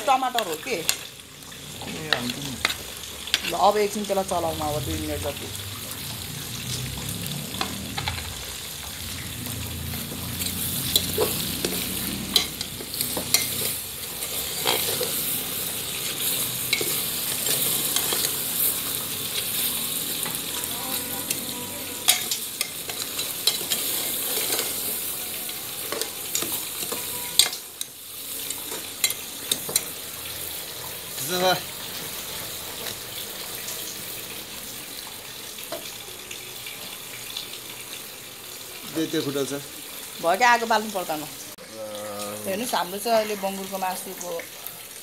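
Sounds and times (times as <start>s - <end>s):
meat sizzling in hot oil: 0.0s - 45.0s
metal ladle scraping pot: 10.4s - 18.3s, 22.0s - 24.9s.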